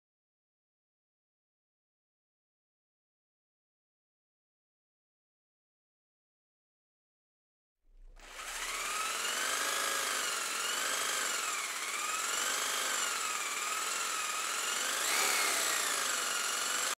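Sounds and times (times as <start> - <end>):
small motor whining: 8.0 - 17.0.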